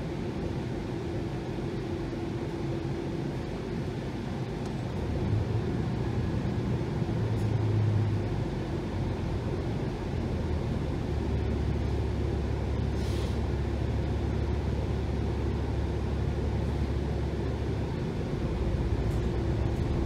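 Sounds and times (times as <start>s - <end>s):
bus engine drone: 0.0s - 20.0s
air hiss: 13.0s - 13.4s.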